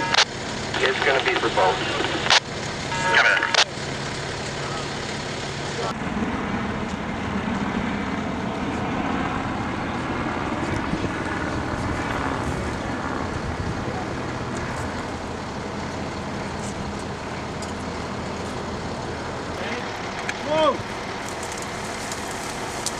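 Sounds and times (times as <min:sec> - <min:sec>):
diesel engine idling: 0:00.0 - 0:22.9
faint voices: 0:00.8 - 0:02.4, 0:03.0 - 0:03.9, 0:04.5 - 0:06.0, 0:09.9 - 0:22.7.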